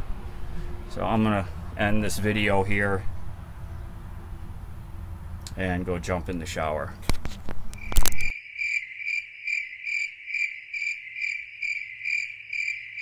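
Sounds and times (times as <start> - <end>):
cricket chirping: 7.7 - 13.0.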